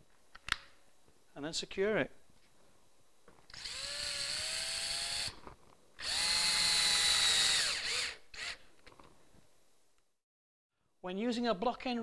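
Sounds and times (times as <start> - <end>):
cordless drill driving fixing: 3.5 - 5.4, 6.0 - 8.6.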